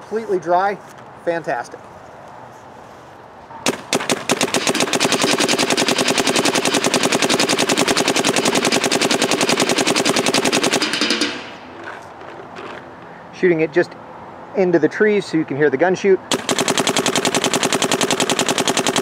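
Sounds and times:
paintball marker firing: 3.6 - 11.6, 16.3 - 19.0.

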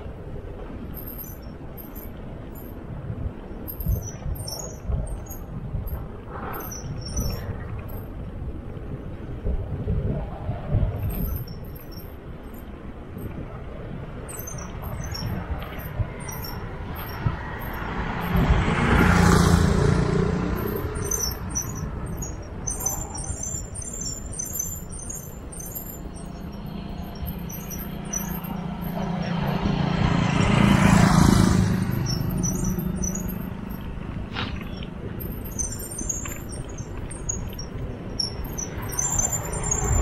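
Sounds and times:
wind rumbling on microphone: 0.0 - 40.0
motor vehicle passing: 14.7 - 40.0
motorcycle passing: 16.8 - 22.8, 26.4 - 34.9
high-pitched chirping: 20.5 - 29.0, 31.9 - 33.8, 34.7 - 40.0.

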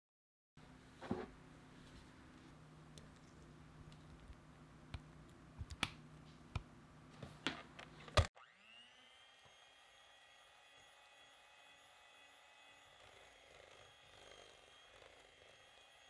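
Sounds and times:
electric hand mixer whine: 8.4 - 16.0.

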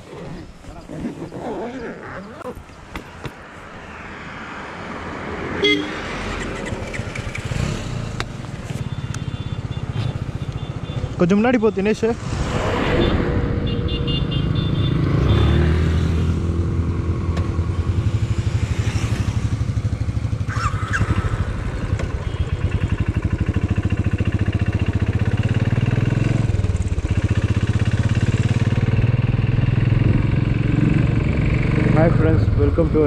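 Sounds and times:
motorcycle engine running: 16.9 - 32.1.

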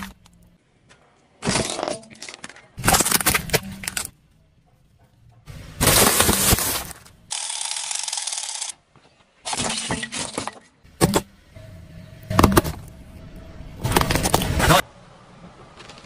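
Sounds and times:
car tyre crushing plastic containers: 1.4 - 4.2, 5.6 - 7.2, 12.3 - 13.0, 13.8 - 14.7.

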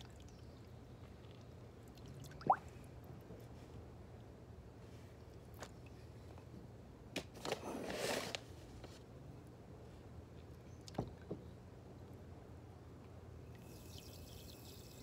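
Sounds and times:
water splash and trickle: 0.0 - 3.2.

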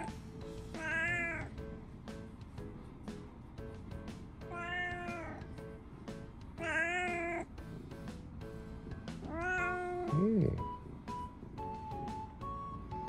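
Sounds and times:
background music: 0.0 - 13.0
cat meowing: 0.7 - 1.5, 4.5 - 5.5, 6.6 - 7.5, 9.2 - 10.6.

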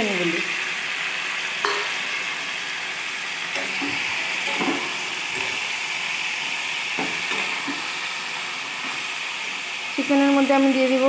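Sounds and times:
chicken sizzling in oil: 0.0 - 11.0
light knocks in pan: 3.8 - 5.6.

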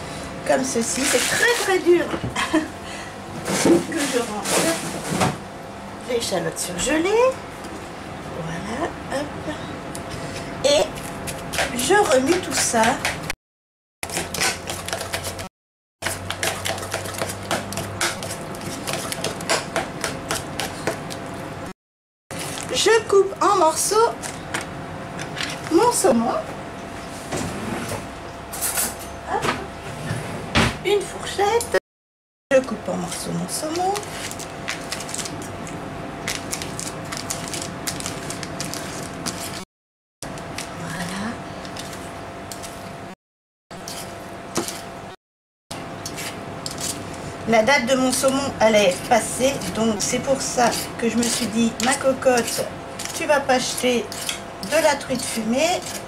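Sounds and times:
utensil stirring thick sauce: 14.0 - 15.4, 16.0 - 21.1, 48.2 - 56.0.

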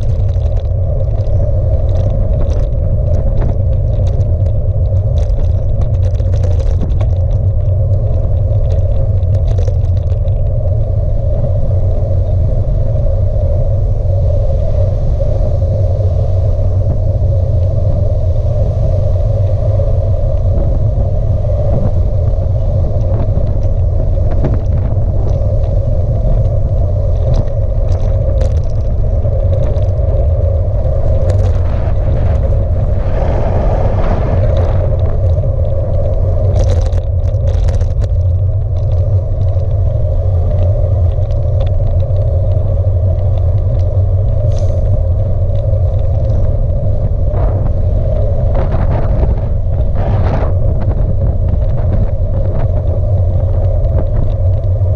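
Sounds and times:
clicks and rattles: 0.0 - 10.6, 26.4 - 30.2, 34.5 - 39.8
bicycle tyre noise on road: 0.0 - 54.9
wind buffeting microphone: 0.0 - 54.9.

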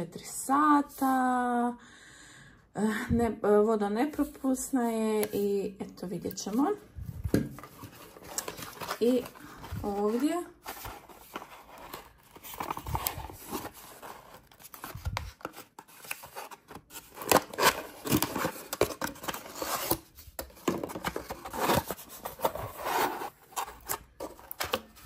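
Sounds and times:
paper packing filler crinkling: 20.8 - 25.0
bottle scraping cardboard box: 21.5 - 23.4.

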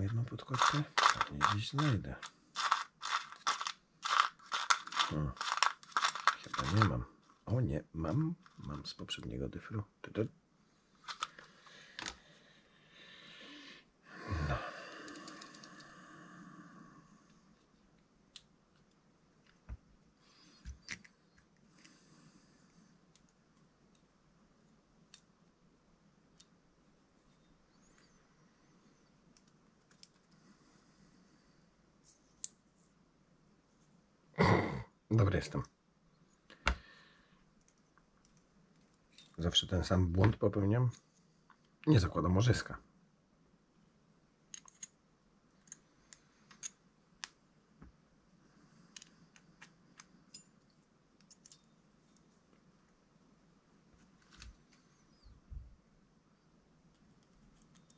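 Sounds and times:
faint clicks of small parts handled: 0.2 - 7.4, 11.0 - 12.2, 23.1 - 24.1, 29.3 - 30.4, 32.0 - 33.0, 37.6 - 39.6, 44.5 - 45.0, 45.6 - 48.0, 48.8 - 52.7, 53.9 - 54.9, 56.9 - 57.9
small metal parts clicking: 0.4 - 6.9, 44.5 - 45.0, 51.2 - 51.8.

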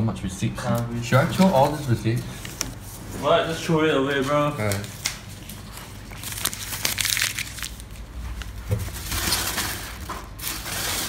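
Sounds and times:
paper being crumpled: 4.2 - 11.0.

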